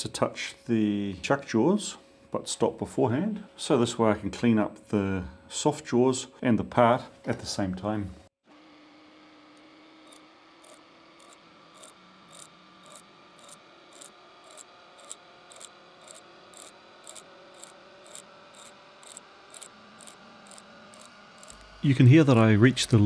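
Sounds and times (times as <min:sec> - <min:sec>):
lathe motor whine: 0:08.4 - 0:23.0
lathe tool scraping metal: 0:09.6 - 0:23.0.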